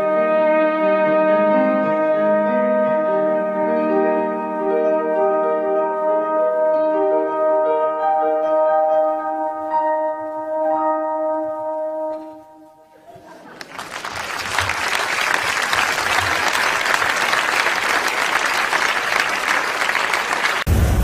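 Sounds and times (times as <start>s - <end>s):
alphorn note: 0.0s - 13.0s
audience applause: 13.3s - 20.8s.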